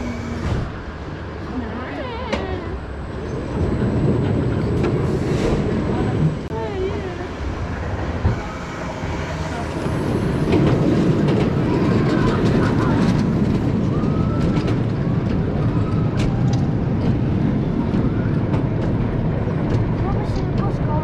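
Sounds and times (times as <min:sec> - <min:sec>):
roller coaster lift rattling: 0:07.9 - 0:21.0.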